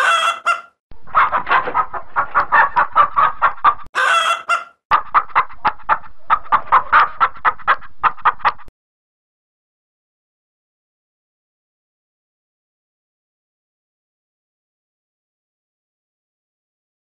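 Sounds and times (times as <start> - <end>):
chicken clucking loudly: 0.0 - 8.7
chicken squawk: 0.0 - 8.7.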